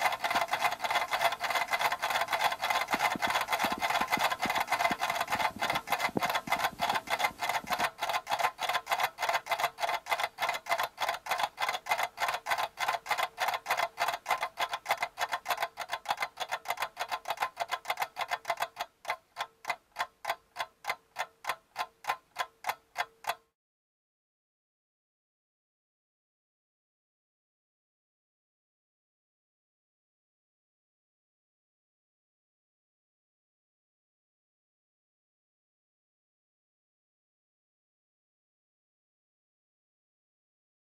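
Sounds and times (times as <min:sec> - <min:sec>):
clock ticking: 0:00.0 - 0:23.4.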